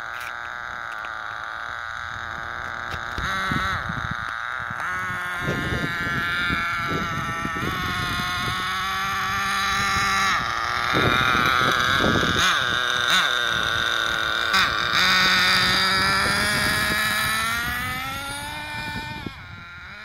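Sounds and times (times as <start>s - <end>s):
rc car nitro engine whining: 0.0s - 20.0s.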